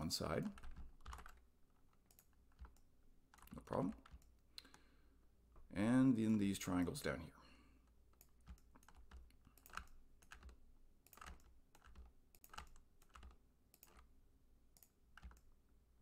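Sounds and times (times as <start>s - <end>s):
computer mouse clicks: 0.5s - 4.8s, 8.1s - 14.1s, 14.7s - 15.6s
keyboard clicks: 0.5s - 4.8s, 8.1s - 14.1s, 14.8s - 15.5s.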